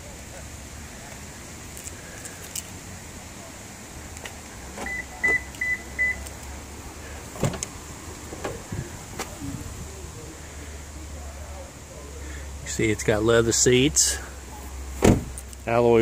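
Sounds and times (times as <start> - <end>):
car door unlatched and opened: 7.3 - 7.7, 15.0 - 15.6.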